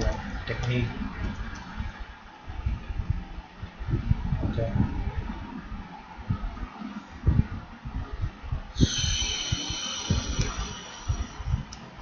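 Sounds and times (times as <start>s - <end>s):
high steady whine: 0.0s - 12.0s
low dull thumps: 7.2s - 12.0s.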